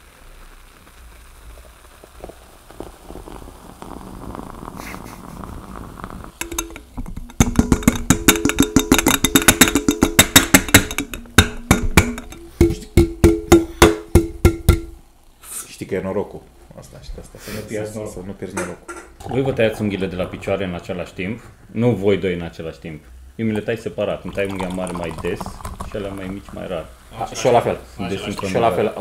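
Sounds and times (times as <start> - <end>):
fizzy drink pouring into glass: 0.0 - 13.7, 18.6 - 21.0, 23.6 - 29.0
rhythmic plucked string music: 6.4 - 15.0.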